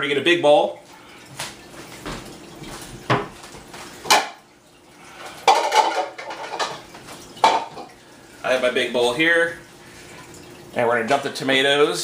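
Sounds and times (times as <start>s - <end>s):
dishes knocking and clattering: 2.0s - 4.4s, 5.3s - 8.0s.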